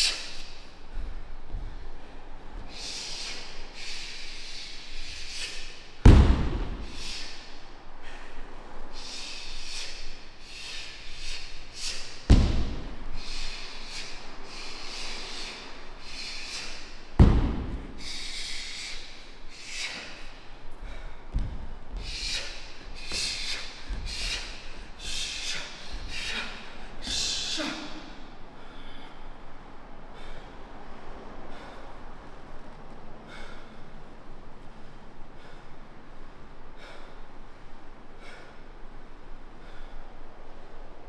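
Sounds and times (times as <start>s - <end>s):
sharp hissing breath bursts: 0.0s - 0.7s, 2.7s - 29.3s
feet stamping on floor: 6.0s - 6.8s, 12.3s - 12.9s, 17.2s - 17.8s, 21.3s - 22.2s.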